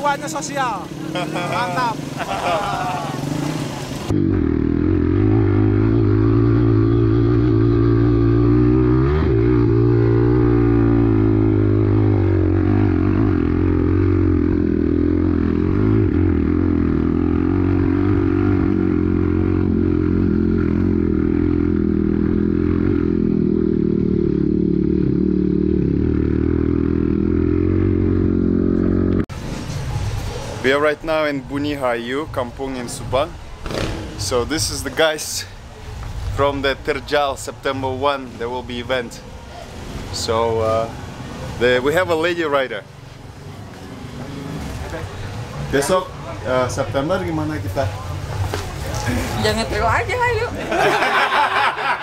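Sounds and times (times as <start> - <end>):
dirt bike engine revving: 0.4 - 29.2, 33.6 - 34.4.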